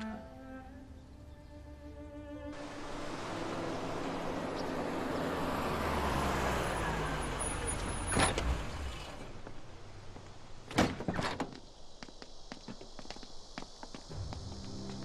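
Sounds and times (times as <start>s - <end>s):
car rolling over cobblestones: 2.6s - 12.0s.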